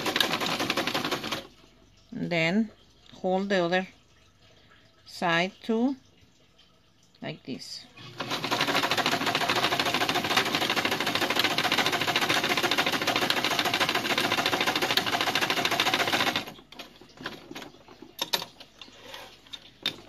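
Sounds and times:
sewing machine stitching: 0.0s - 1.5s, 8.0s - 20.0s.

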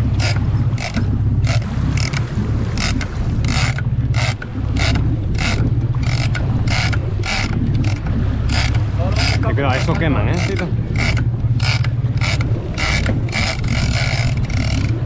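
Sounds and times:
boat engine drone: 0.0s - 15.0s
fishing reel ratcheting: 0.2s - 15.0s.

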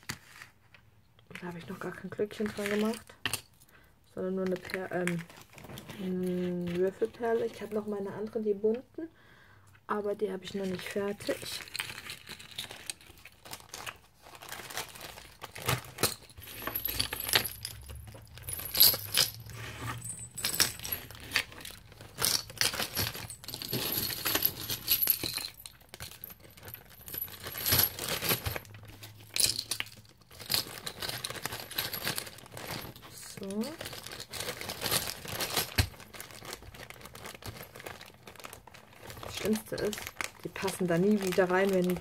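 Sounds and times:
key rings clinking and jingling: 16.4s - 28.7s.

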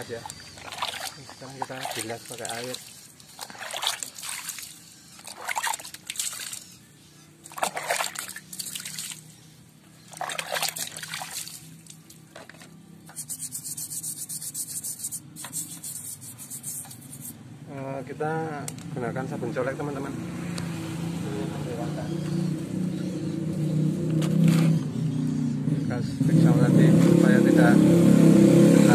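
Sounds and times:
water trickling: 0.0s - 12.6s
water splashing on engine: 0.0s - 12.8s.

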